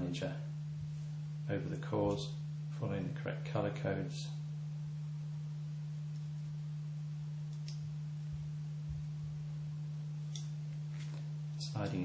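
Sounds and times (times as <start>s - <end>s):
steady low hum: 0.0s - 12.0s
faint small clicks: 7.5s - 7.8s.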